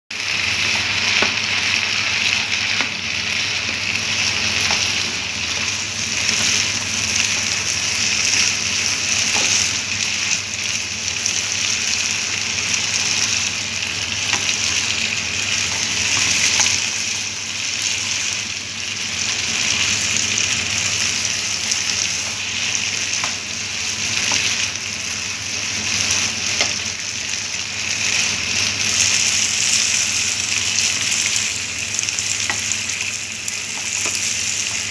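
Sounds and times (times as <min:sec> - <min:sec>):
food sizzling in a wok: 0:00.1 - 0:34.9
spatula tapping and scraping pan: 0:32.4 - 0:34.9.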